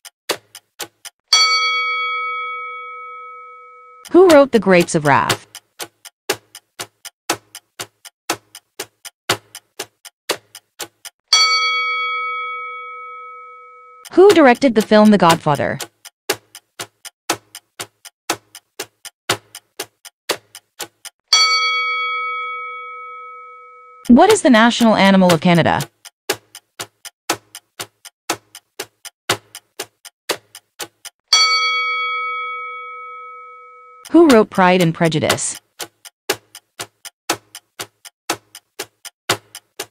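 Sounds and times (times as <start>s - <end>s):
clock ticking: 0.3s - 39.9s
bell-like ding: 1.3s - 4.0s, 11.4s - 14.0s, 21.4s - 24.1s, 31.3s - 34.1s.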